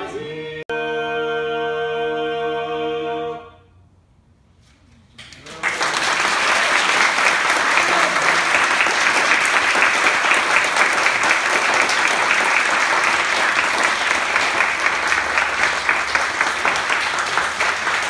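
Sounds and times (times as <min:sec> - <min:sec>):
audience applauding: 0:05.2 - 0:18.0.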